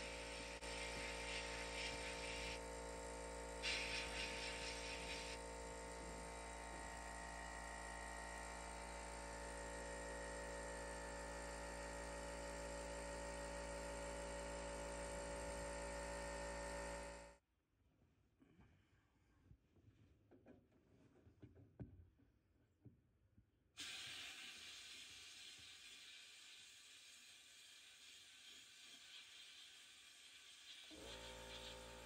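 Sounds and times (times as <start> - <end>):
sandblasting gun hissing: 0.0 - 2.7, 3.6 - 5.5, 23.8 - 32.0.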